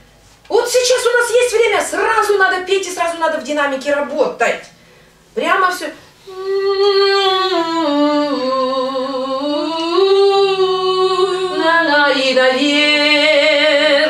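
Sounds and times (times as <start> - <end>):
woman singing with vibrato: 6.2 - 14.0.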